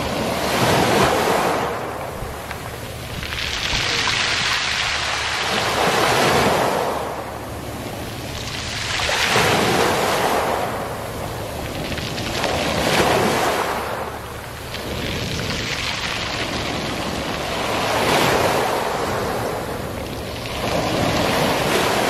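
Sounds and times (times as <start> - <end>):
small waves washing on beach: 0.0 - 22.0
pebbles rolling in surf: 0.1 - 7.2, 8.2 - 22.0.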